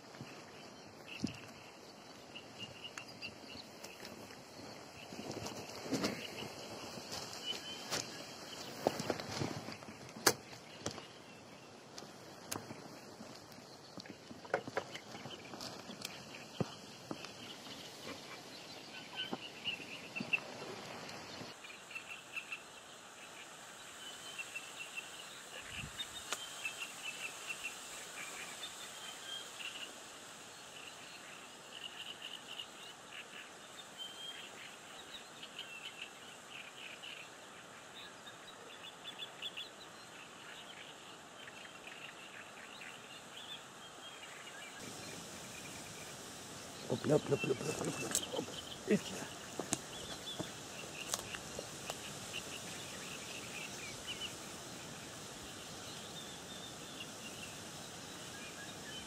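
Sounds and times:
open-air hiss: 0.0s - 59.0s
small birds chirping: 0.0s - 59.0s.

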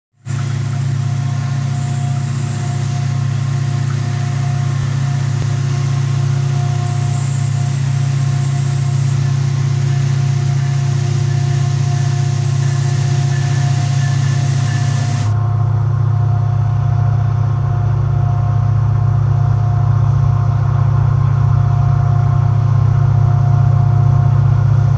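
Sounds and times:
diesel locomotive rumbling: 0.2s - 24.9s.

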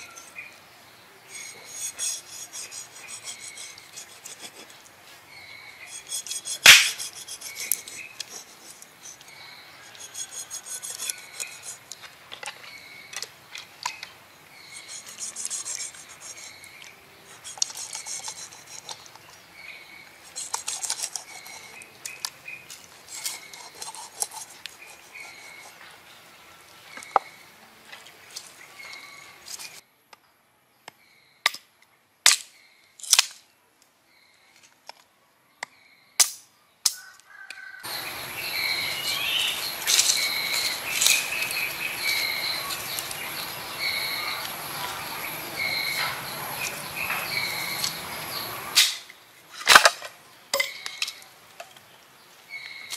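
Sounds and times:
cleaver scraping fish: 0.0s - 0.4s, 1.3s - 4.9s, 5.8s - 12.8s, 14.6s - 19.3s, 20.2s - 25.9s, 28.4s - 29.8s, 38.6s - 48.2s
high chirp: 37.9s - 48.8s.

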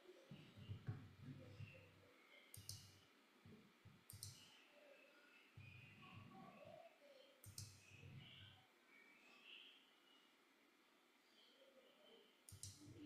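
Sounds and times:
computer mouse clicks: 2.5s - 3.0s, 4.1s - 4.6s, 7.4s - 8.0s, 12.5s - 13.0s.

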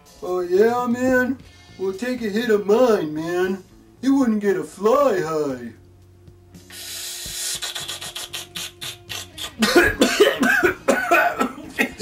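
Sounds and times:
person inhaling with hiss: 6.6s - 9.6s
short sucking puffs: 6.6s - 9.6s
person coughing: 9.3s - 12.0s.

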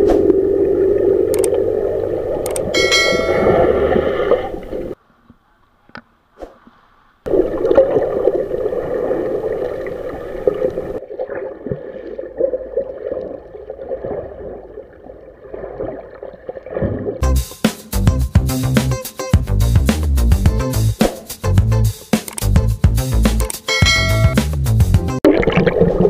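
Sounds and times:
water sloshing and gurgling: 7.3s - 17.2s.

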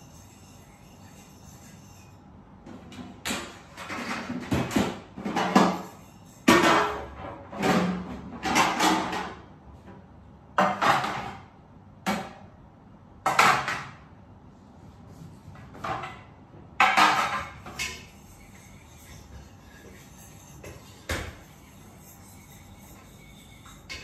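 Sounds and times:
kitchenware knocking and scraping: 2.7s - 9.4s, 10.6s - 11.4s, 13.3s - 14.0s, 15.8s - 24.0s.

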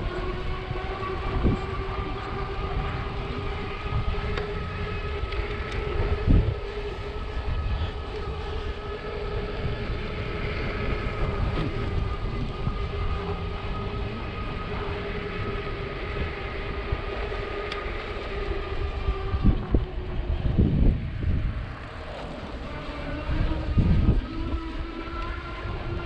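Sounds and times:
hub motor whine: 0.0s - 26.0s
wind gusts buffeting microphone: 0.0s - 26.0s
wind rushing over microphone: 0.0s - 26.0s.

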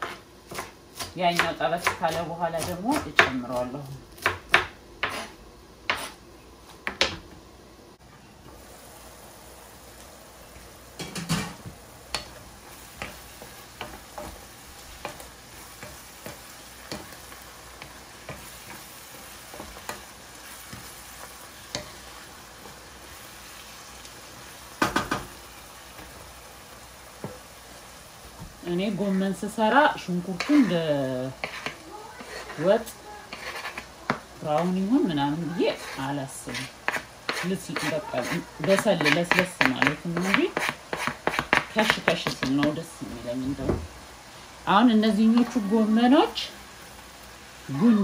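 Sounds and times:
onions sizzling in oil: 0.0s - 48.0s
knife chopping on plastic board: 4.2s - 5.3s, 36.9s - 42.7s
wooden spoon scraping pan: 5.0s - 6.2s, 11.0s - 23.2s, 30.0s - 43.6s.

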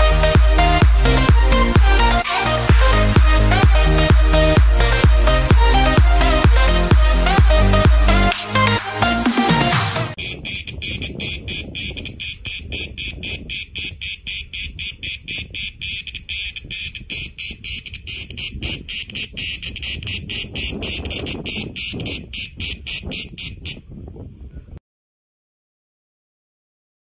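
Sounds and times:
cicada buzzing: 10.2s - 23.8s.

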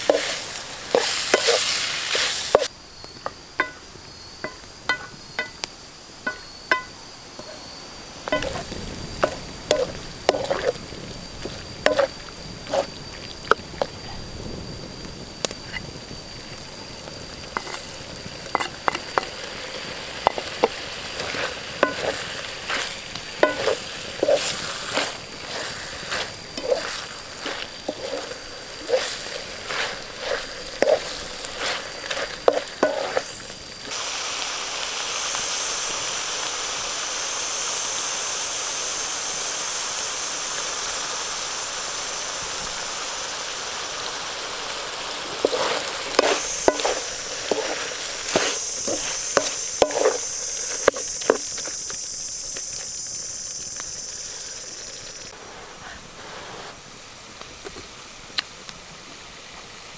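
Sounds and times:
food sizzling in a pan: 0.0s - 2.7s, 3.3s - 56.0s
spatula scraping pan: 0.0s - 2.7s, 8.3s - 14.1s, 17.6s - 33.6s, 45.3s - 51.9s.

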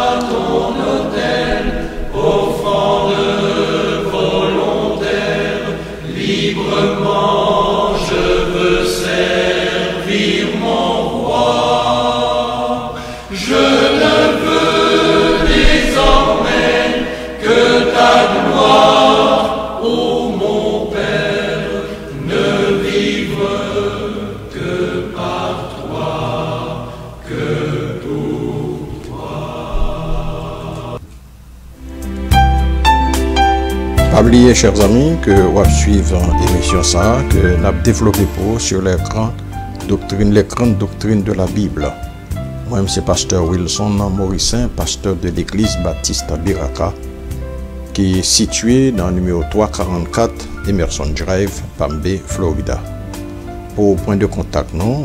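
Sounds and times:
choir singing: 0.0s - 31.1s, 33.2s - 39.3s.

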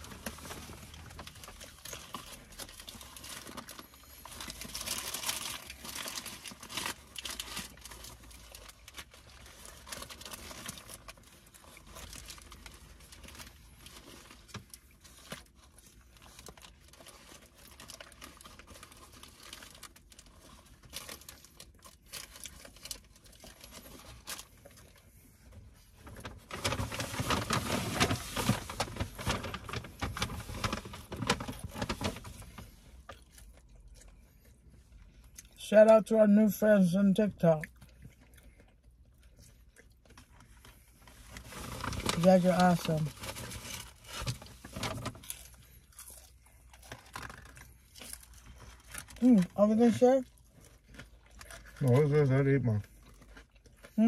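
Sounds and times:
paper wrappers crinkling: 0.0s - 25.0s, 25.7s - 34.2s, 39.5s - 54.0s
people chewing: 37.6s - 41.0s, 45.2s - 49.2s, 50.3s - 52.1s.

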